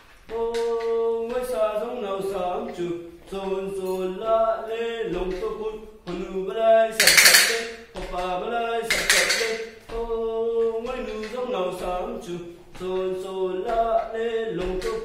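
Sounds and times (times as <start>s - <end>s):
man singing folk song: 0.2s - 15.0s
bamboo clapper rattling: 7.0s - 7.9s, 8.9s - 9.8s.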